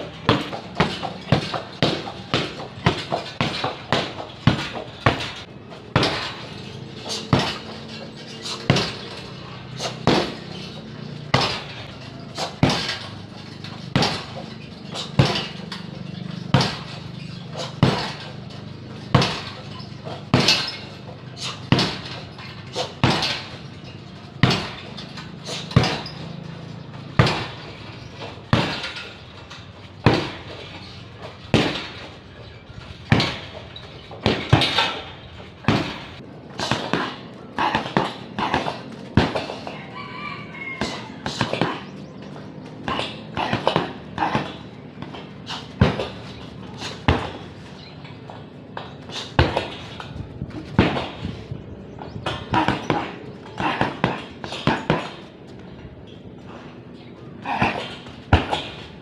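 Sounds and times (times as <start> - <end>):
kicks smacking heavy bag: 0.0 - 29.2, 29.9 - 32.2, 32.9 - 39.7, 40.8 - 41.9, 42.8 - 51.5, 52.2 - 55.3, 57.4 - 59.0
rooster crowing: 39.6 - 41.4.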